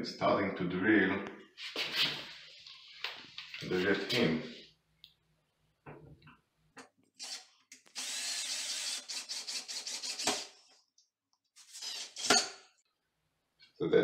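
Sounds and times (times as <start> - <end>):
cordless drill driving screw: 7.2 - 10.5, 11.6 - 12.3.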